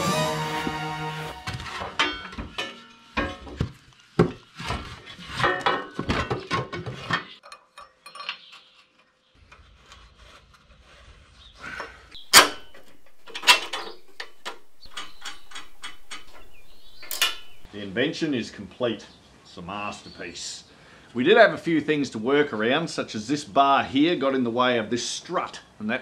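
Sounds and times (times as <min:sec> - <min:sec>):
metal brackets clanking: 0:01.5 - 0:03.6, 0:12.2 - 0:17.7.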